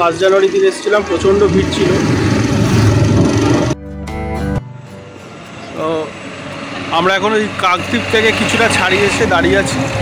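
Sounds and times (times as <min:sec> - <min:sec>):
motorcycle engine: 0:00.0 - 0:03.9
wind rush: 0:01.4 - 0:03.8.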